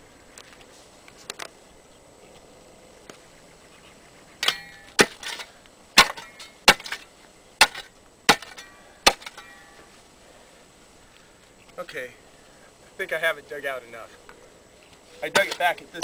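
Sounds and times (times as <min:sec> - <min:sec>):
shovel striking hard ground: 0:04.4 - 0:09.8, 0:15.2 - 0:16.0
soil and rock clattering: 0:04.4 - 0:09.8, 0:15.2 - 0:16.0.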